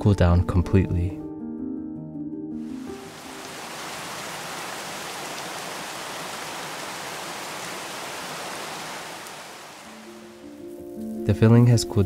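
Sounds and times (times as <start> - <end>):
rain falling: 2.7 - 11.2.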